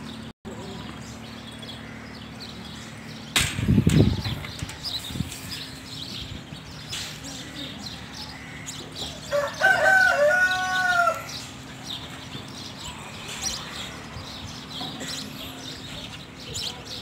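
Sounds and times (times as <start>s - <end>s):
small birds chirping: 0.0s - 17.0s
rooster crowing: 9.2s - 11.4s.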